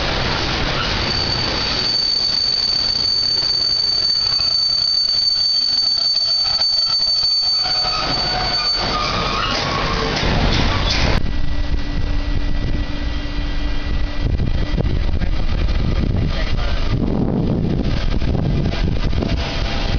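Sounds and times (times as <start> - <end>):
freight train rolling past: 0.0 - 19.9
high-pitched wheel squeal: 0.7 - 11.2.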